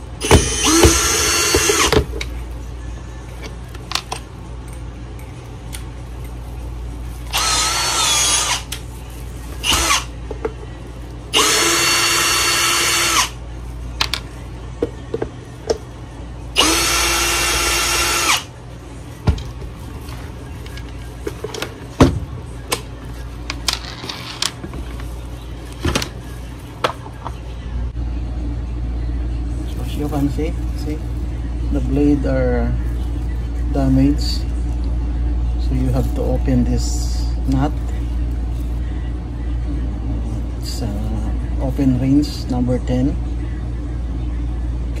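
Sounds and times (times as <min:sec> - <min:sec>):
cordless drill whirring: 0:00.2 - 0:02.0, 0:07.3 - 0:08.7, 0:09.6 - 0:10.1, 0:11.4 - 0:13.4, 0:16.6 - 0:18.5.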